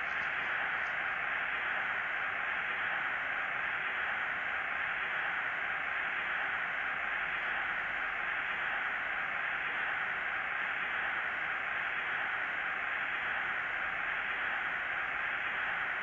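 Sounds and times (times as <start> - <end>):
stadium crowd noise through tv speaker: 0.0 - 16.0.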